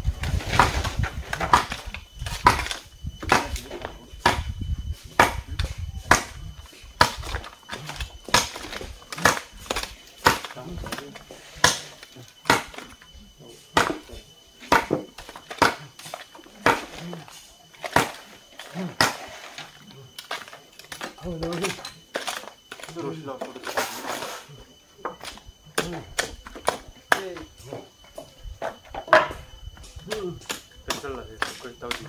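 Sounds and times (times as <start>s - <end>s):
tool striking wood: 0.5s - 6.4s, 7.0s - 13.0s, 13.7s - 17.0s.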